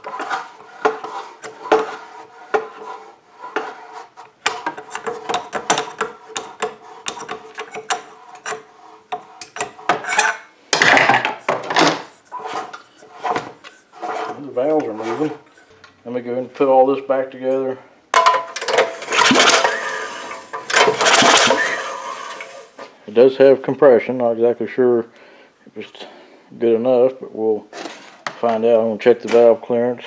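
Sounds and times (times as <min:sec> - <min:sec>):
screwdriver clicking and scraping metal: 0:04.4 - 0:10.4
flywheel rasping: 0:18.8 - 0:22.8.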